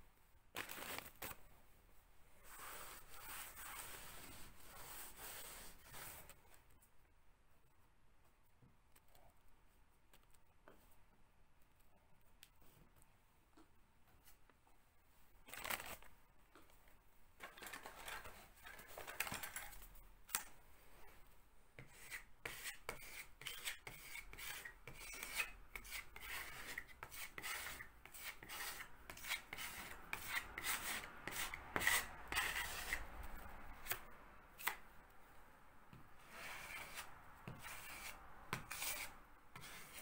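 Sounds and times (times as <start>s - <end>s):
filler knife scraping plaster: 2.5s - 6.3s, 21.8s - 33.1s, 36.2s - 40.0s.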